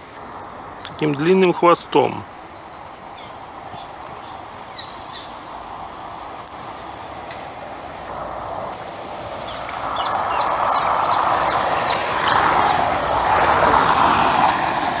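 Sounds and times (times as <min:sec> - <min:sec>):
traffic noise: 0:00.0 - 0:15.0
parakeet shrill calls: 0:03.2 - 0:05.3.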